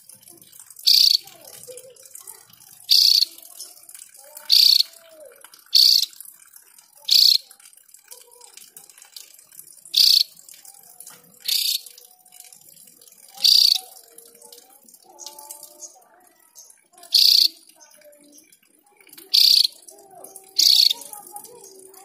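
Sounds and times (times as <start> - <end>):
faint chirping: 0.8 - 1.2, 2.9 - 3.7, 4.5 - 5.0, 5.7 - 6.2, 7.0 - 7.5, 10.0 - 10.4, 11.4 - 11.9, 13.4 - 13.9, 15.0 - 18.5, 19.2 - 21.1
bird giving harsh calls: 0.9 - 1.2, 2.9 - 3.3, 4.4 - 5.0, 5.7 - 6.2, 7.0 - 7.5, 10.0 - 10.3, 11.4 - 11.9, 13.4 - 13.9, 17.1 - 17.7, 19.3 - 19.9, 20.6 - 21.1.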